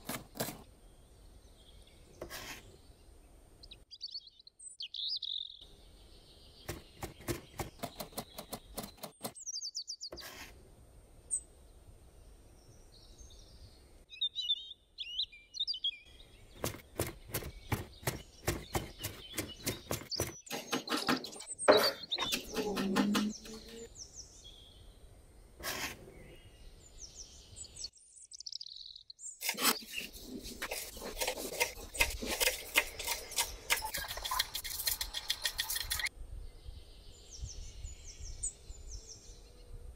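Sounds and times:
birds chirping: 0.0 - 10.3, 11.2 - 39.7
knife chopping on wooden board: 16.6 - 23.5.

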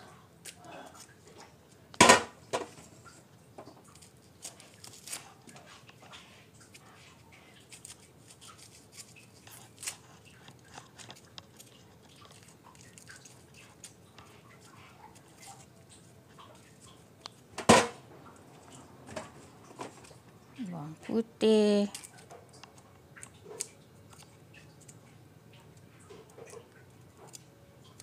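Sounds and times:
knife peeling shallot skins: 3.9 - 5.6, 7.6 - 17.3, 21.9 - 25.0, 25.7 - 28.0.

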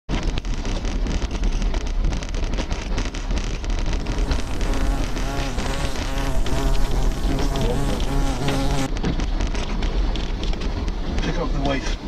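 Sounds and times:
dense crackle of ticks: 0.1 - 12.0
steady low rumble: 0.1 - 12.0
insect-like buzzing: 3.9 - 8.9.

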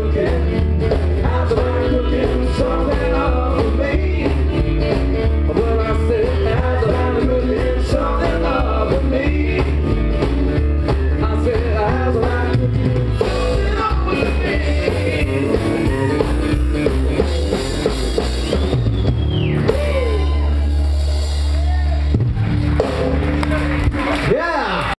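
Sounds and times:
person singing: 0.0 - 4.6, 5.4 - 10.0, 10.9 - 16.5
upright double bass: 0.0 - 24.2
drum kit: 0.0 - 24.5.

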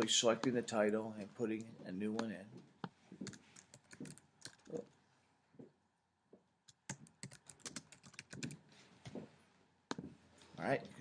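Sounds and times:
typing on computer keyboard: 3.2 - 4.8, 6.7 - 8.6.

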